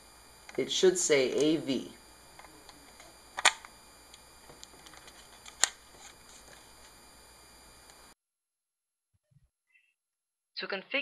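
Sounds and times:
sharp plastic clicks: 3.4s - 3.7s.

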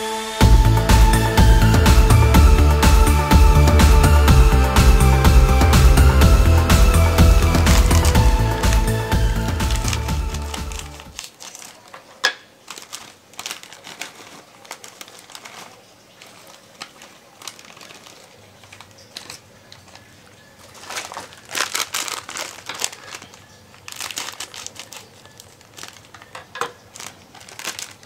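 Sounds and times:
plastic snack bag crinkling: 7.3s - 28.0s.

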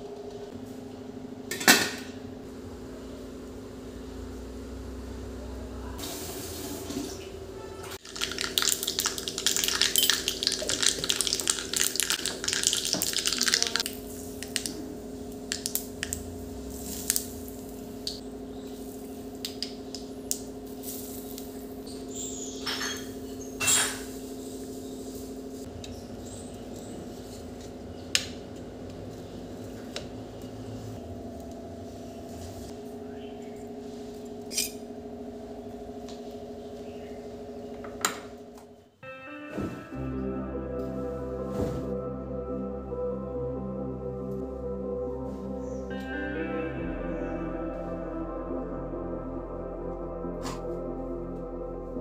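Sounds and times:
steady low hum: 0.0s - 8.0s, 8.8s - 39.0s, 39.6s - 52.0s
hot oil sizzling and crackling: 8.0s - 14.8s, 15.4s - 25.6s.

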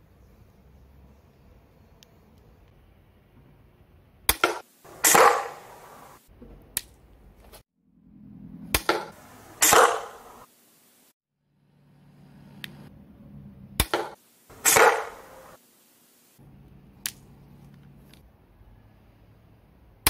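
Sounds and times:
bolt striking target: 4.3s - 6.0s, 8.7s - 10.4s, 13.8s - 15.6s
crossbow release snap: 8.8s - 10.2s, 13.8s - 15.3s.

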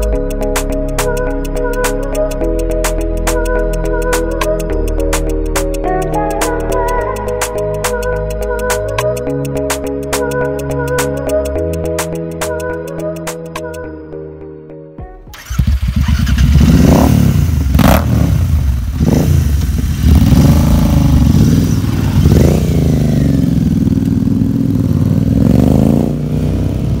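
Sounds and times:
background music: 0.0s - 19.3s
motorcycle engine revving: 15.3s - 27.0s.

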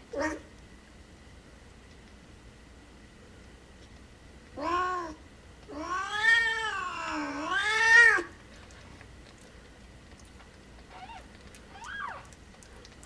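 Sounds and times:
cat meowing: 4.6s - 8.3s, 10.9s - 12.3s
cat yowling: 4.6s - 8.3s, 10.9s - 12.4s.

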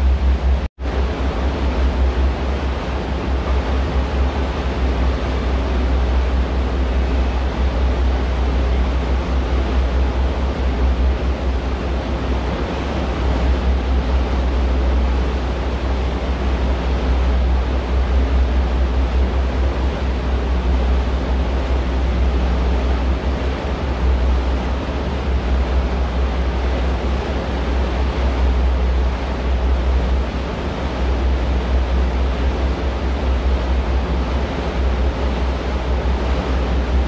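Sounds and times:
boat engine rumble: 0.0s - 37.0s
water and wind rushing hiss: 0.0s - 37.0s.

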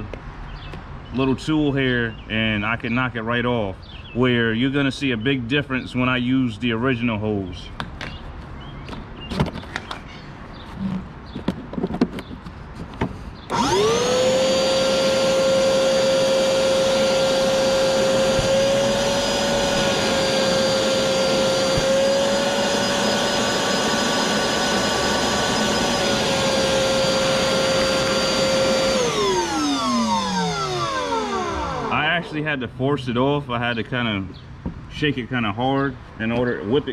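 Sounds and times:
vacuum motor winding down: 13.5s - 32.3s
shop vacuum running: 13.5s - 32.4s.

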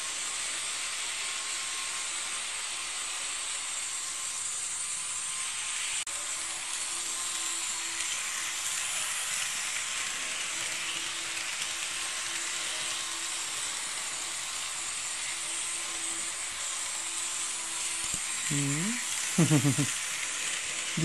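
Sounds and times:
model train motor whirring: 0.0s - 21.0s.

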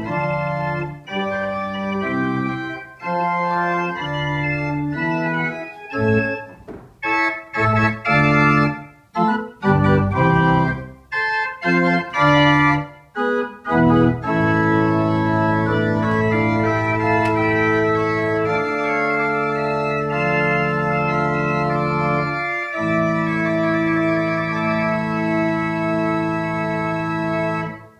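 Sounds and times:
pipe organ playing chords: 0.0s - 27.9s.

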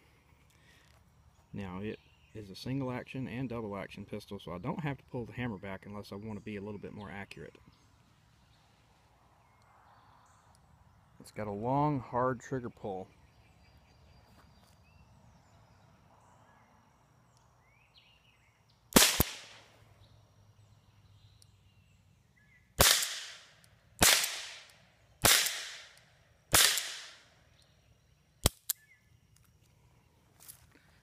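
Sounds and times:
revolver shots cracking: 19.0s - 19.7s, 22.8s - 27.2s.

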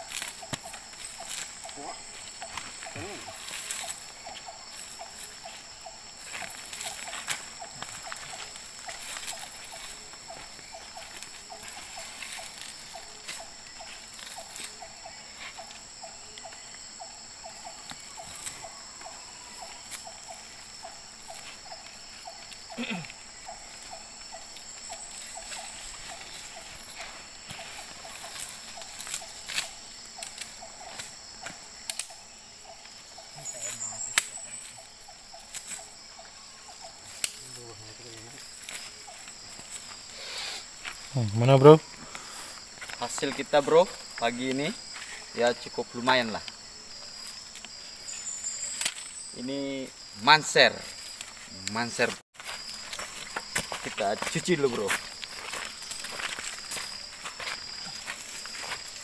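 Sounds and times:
high insect drone: 0.0s - 59.0s
falling animal call: 2.6s - 3.9s
clicks and crunches on stones: 25.1s - 32.2s, 52.4s - 59.0s.

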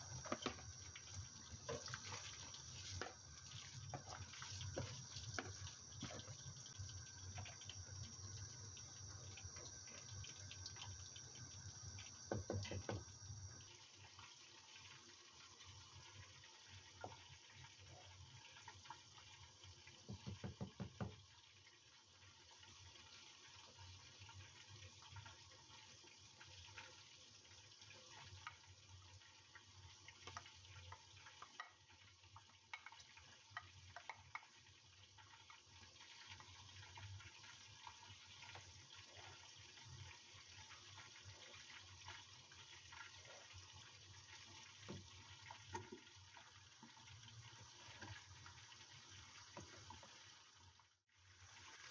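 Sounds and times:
pot bubbling: 0.0s - 51.9s
wooden spoon knocking in pot: 0.2s - 0.7s, 12.3s - 13.0s, 20.0s - 21.2s.

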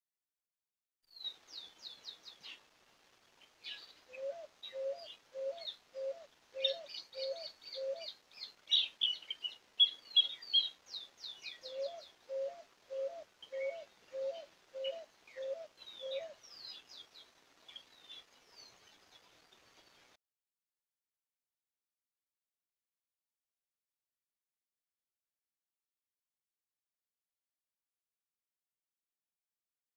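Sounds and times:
songbirds chirping and trilling: 1.1s - 20.2s.

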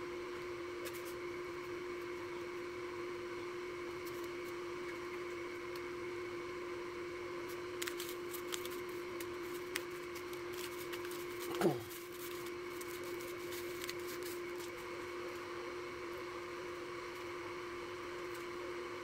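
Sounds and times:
steady background hum: 0.0s - 19.0s
crumb coating crackles and rustles: 7.4s - 16.3s.

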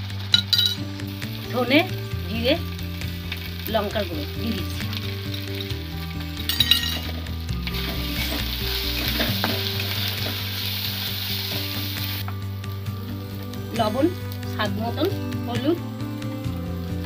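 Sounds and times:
paste sizzling in hot oil: 0.0s - 17.0s
sharp metal clinks: 0.4s - 0.8s, 6.5s - 7.1s
spatula scraping a pan: 7.0s - 12.1s.

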